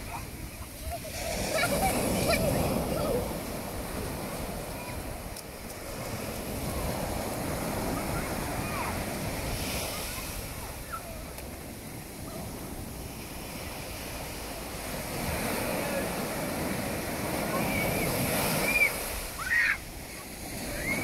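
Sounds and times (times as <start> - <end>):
sea surf washing: 0.0 - 21.0
wave breaking: 0.0 - 21.0
children crying out: 0.1 - 3.4, 17.5 - 19.9.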